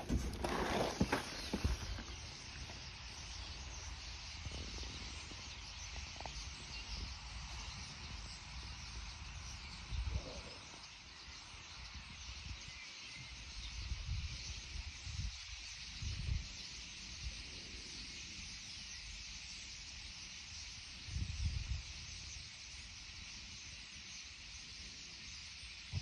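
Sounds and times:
wind buffeting microphone: 11.8 - 16.5, 21.1 - 22.0.

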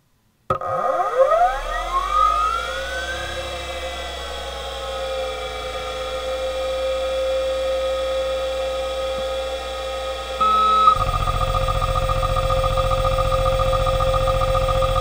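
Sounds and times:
hard drive whine: 0.5 - 15.0
hard drive seek chatter: 10.4 - 15.0.

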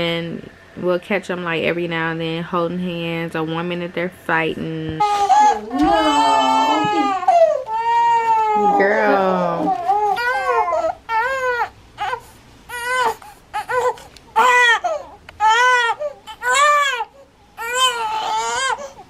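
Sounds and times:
infant crying: 5.0 - 19.0.

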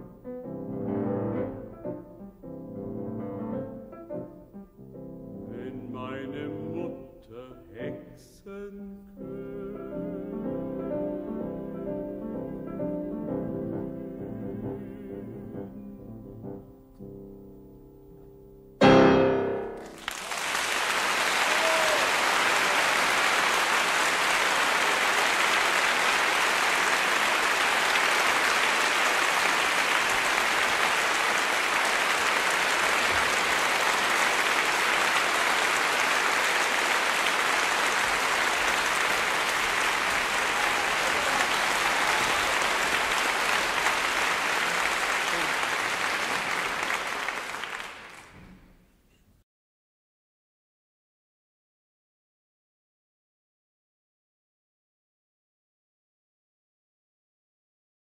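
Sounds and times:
piano playing: 0.0 - 8.2, 9.1 - 20.0
audience applause: 19.8 - 48.6.

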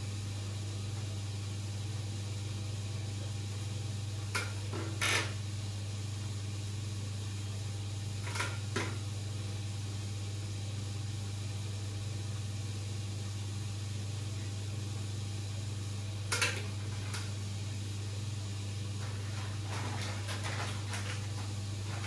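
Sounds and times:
aquarium pump humming: 0.0 - 22.0.

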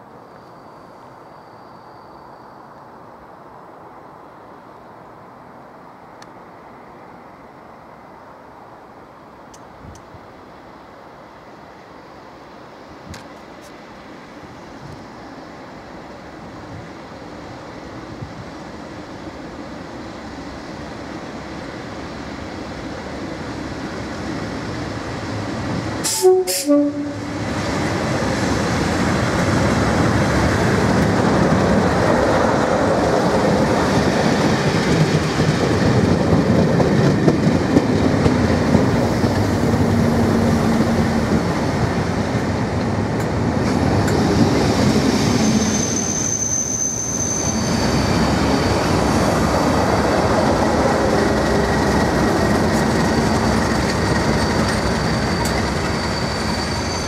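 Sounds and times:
diesel locomotive engines: 0.0 - 57.0
high-pitched brake squeal: 0.2 - 2.8, 26.0 - 27.4, 45.1 - 49.2, 53.3 - 57.0
train wheels on rails: 11.4 - 57.0.

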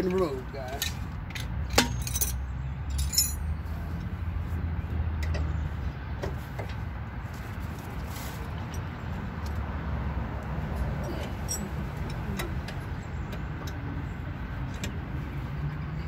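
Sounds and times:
metallic jingle of tools: 0.1 - 3.6, 11.1 - 12.2.

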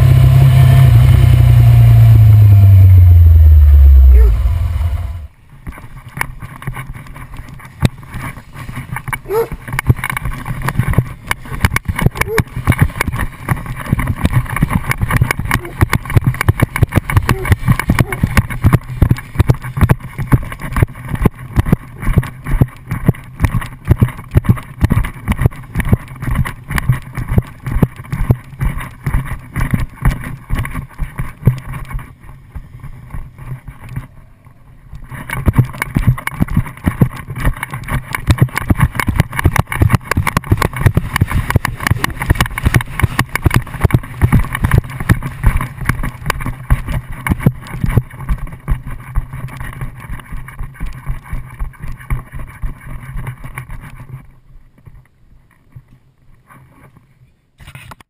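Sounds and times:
motorcycle engine: 0.0 - 5.5, 6.1 - 51.3
camera thumping and rattling: 5.5 - 58.0.

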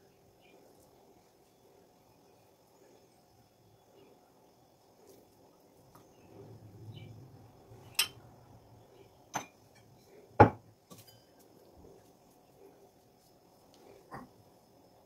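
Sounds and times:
soft rustle of spooning filling: 0.2 - 6.6
spoon and bowls clinking: 7.9 - 8.2, 10.9 - 11.4.

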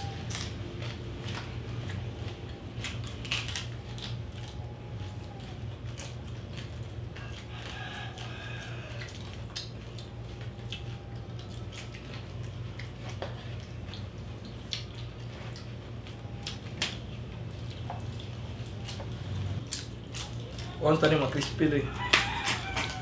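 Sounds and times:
people chewing: 0.0 - 23.0
steady low hum: 0.0 - 23.0
wet clicks and smacks: 9.0 - 23.0.

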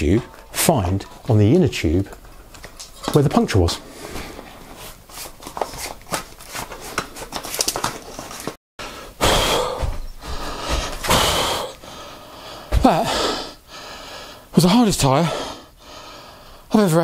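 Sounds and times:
man breathing heavily: 8.8 - 16.7.

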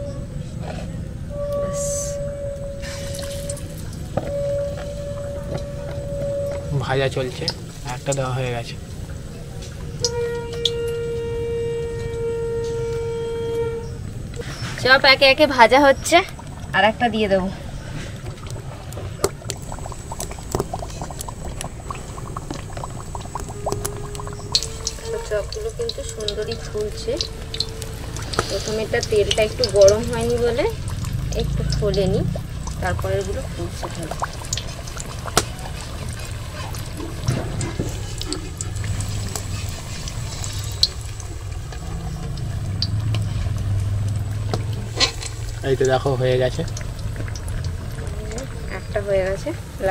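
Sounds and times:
food deep-frying in oil: 0.0 - 49.9
low steady rumble: 0.0 - 49.9
crackling pops: 18.2 - 43.3.

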